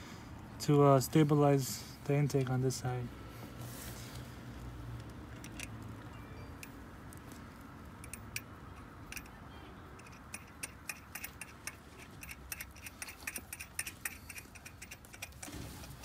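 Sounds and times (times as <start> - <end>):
ratchet wrench clicking: 8.0 - 9.4, 10.0 - 15.5.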